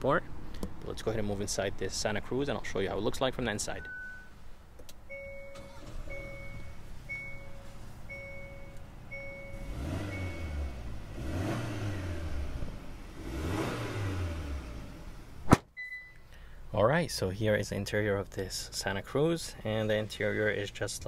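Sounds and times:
car warning chime: 0:03.7 - 0:04.4, 0:05.1 - 0:11.0, 0:15.8 - 0:16.3
car engine revving: 0:09.4 - 0:15.4
sharp knock: 0:15.5 - 0:15.7.

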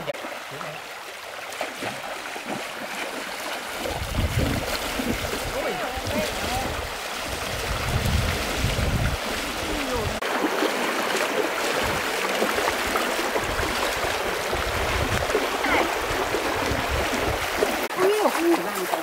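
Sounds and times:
feet splashing through water: 0:00.0 - 0:19.0
stream rushing: 0:00.0 - 0:19.0.

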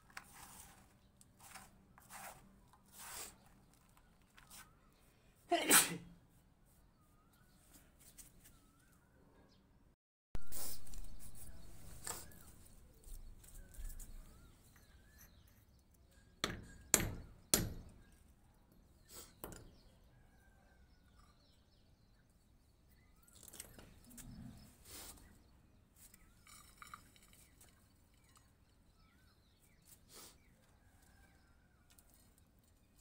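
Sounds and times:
soil rustling into pot: 0:00.0 - 0:04.7
birds chirping faintly: 0:06.2 - 0:33.0.

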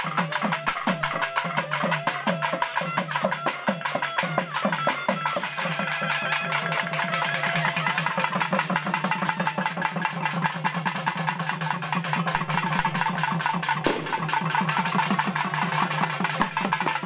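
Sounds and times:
drums playing fast rhythm: 0:00.0 - 0:17.0
sharp crack: 0:13.8 - 0:14.6.

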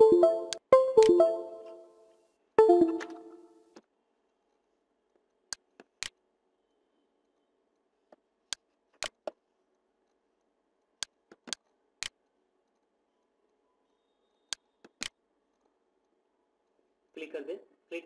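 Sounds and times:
ringing musical tone: 0:00.0 - 0:02.0, 0:02.6 - 0:03.6.

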